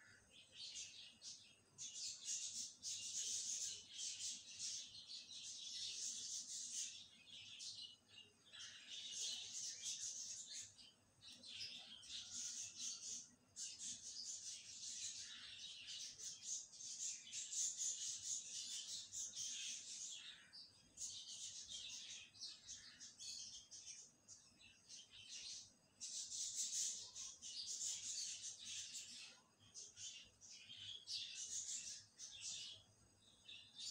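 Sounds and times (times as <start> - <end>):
birds chirping: 0.0 - 33.9.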